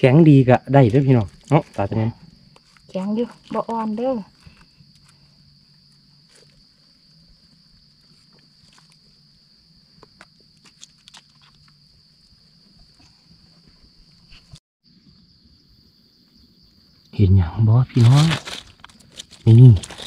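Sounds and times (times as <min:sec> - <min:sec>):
high insect drone: 0:00.0 - 0:20.0
leaf litter rustling: 0:17.9 - 0:20.0.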